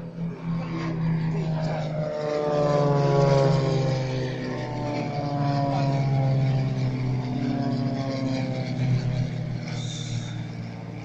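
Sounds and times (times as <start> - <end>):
propeller plane droning overhead: 0.0 - 11.0.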